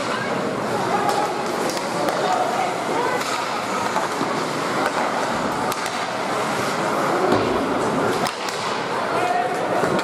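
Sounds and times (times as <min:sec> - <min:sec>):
steady rink hum: 0:00.0 - 0:10.0
hockey stick or puck clacking: 0:01.0 - 0:02.5, 0:03.1 - 0:10.0
skates scraping on ice: 0:01.4 - 0:09.0.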